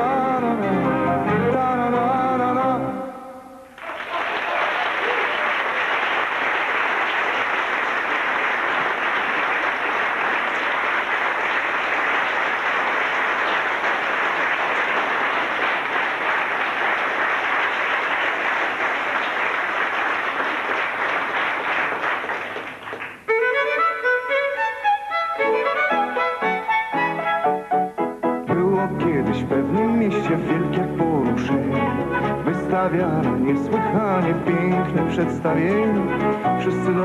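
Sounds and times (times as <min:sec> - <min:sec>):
audience applauding: 0:03.8 - 0:23.4
violin playing: 0:23.3 - 0:28.0, 0:29.1 - 0:37.0.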